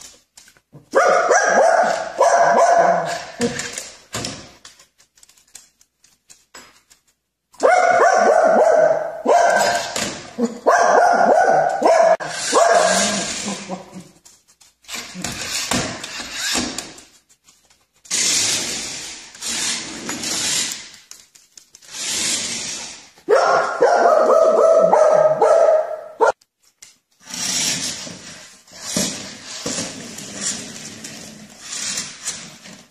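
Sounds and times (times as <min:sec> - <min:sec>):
dog barking rapidly: 0:00.9 - 0:03.4, 0:07.6 - 0:13.6, 0:23.3 - 0:26.4.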